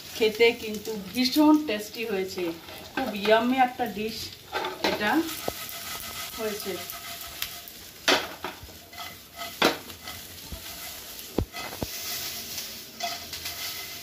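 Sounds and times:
chicken sizzling in a frying pan: 0:00.0 - 0:14.0
spatula knocking on pan: 0:08.1 - 0:09.9.

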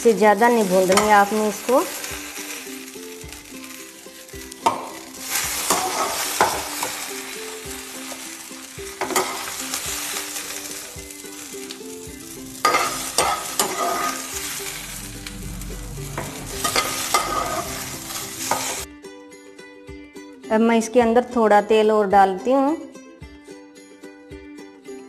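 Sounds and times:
okra sizzling in oil: 0:00.0 - 0:18.9
metal spatula scraping a pan: 0:00.4 - 0:11.5, 0:12.6 - 0:18.9.

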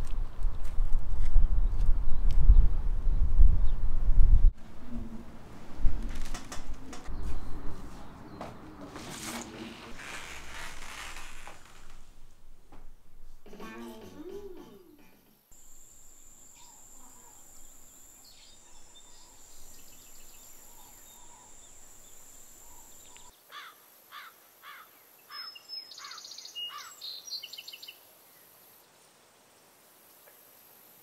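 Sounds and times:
birds chirping: 0:06.8 - 0:09.0, 0:15.6 - 0:23.3
steady high-pitched whine: 0:15.5 - 0:23.3.

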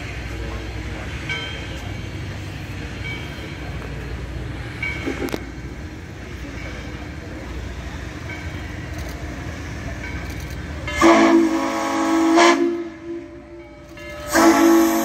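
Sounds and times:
train rumbling: 0:00.0 - 0:15.0
locomotive whistle blast: 0:11.0 - 0:13.5, 0:14.2 - 0:15.0.

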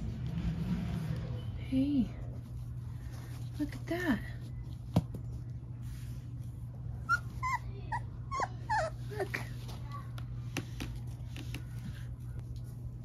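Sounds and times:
puppies whimpering and yipping: 0:07.0 - 0:09.4.

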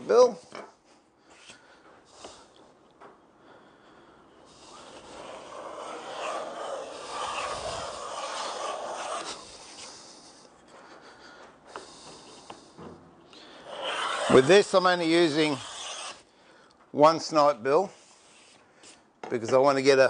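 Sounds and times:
hand plane shaving wood: 0:04.6 - 0:09.4, 0:13.6 - 0:16.2.

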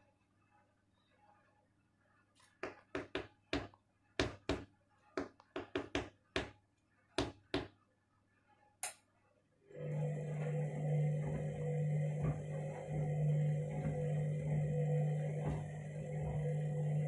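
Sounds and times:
drum motor humming: 0:09.7 - 0:17.0.

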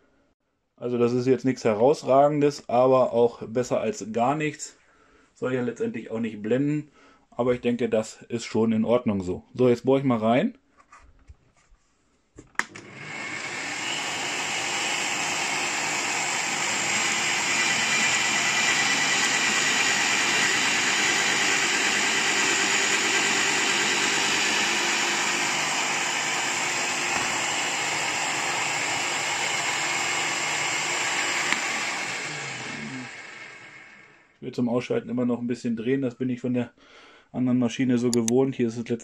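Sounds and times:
drill press motor running: 0:12.6 - 0:34.3.

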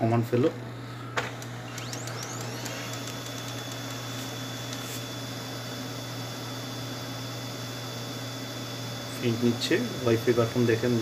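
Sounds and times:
printer running noise: 0:00.0 - 0:06.4
printer motor whine: 0:00.0 - 0:11.0.

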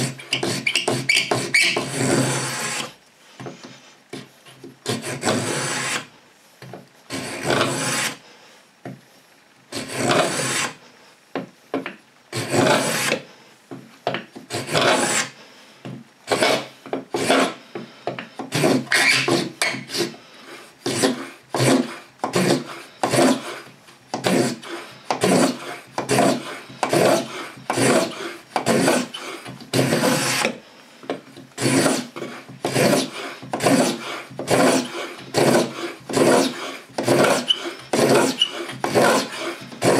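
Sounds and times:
scraper blade scraping wood: 0:00.0 - 0:03.0, 0:04.1 - 0:06.1, 0:07.1 - 0:08.2, 0:09.7 - 0:10.8, 0:12.3 - 0:13.2, 0:14.4 - 0:15.4, 0:16.3 - 0:17.6, 0:18.4 - 0:30.6, 0:31.3 - 0:39.9.

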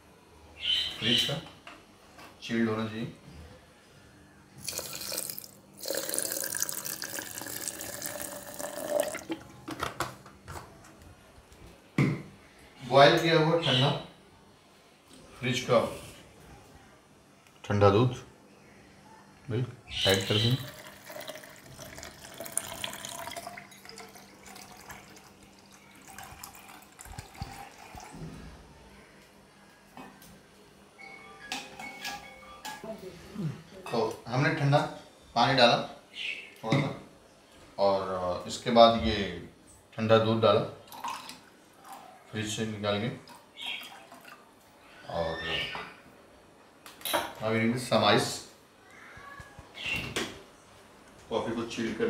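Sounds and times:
water pouring into plastic jar: 0:04.6 - 0:09.5, 0:20.1 - 0:28.2.

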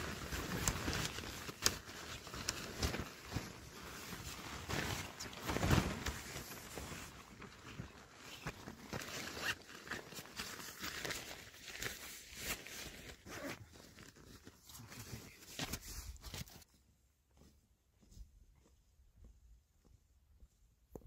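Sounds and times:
canvas bag rustling and scraping: 0:00.0 - 0:16.7.

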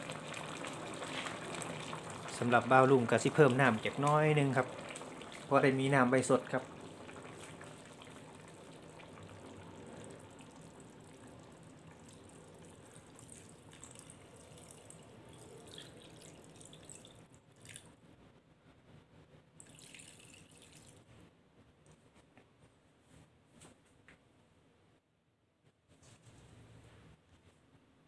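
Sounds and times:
water trickling into a wok: 0:00.0 - 0:17.9, 0:19.6 - 0:21.1.

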